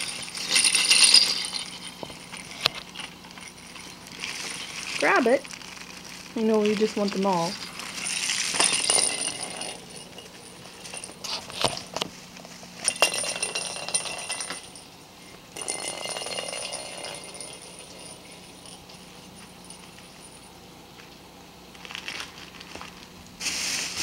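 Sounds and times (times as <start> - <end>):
jingle bell in rolling toy ball: 0.0 - 5.6, 7.7 - 12.0, 12.8 - 20.6.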